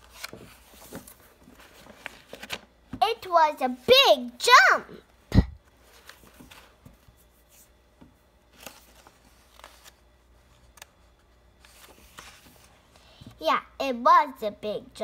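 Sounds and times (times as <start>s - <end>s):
book pages rustling and turning: 0.0s - 3.0s, 5.6s - 13.4s.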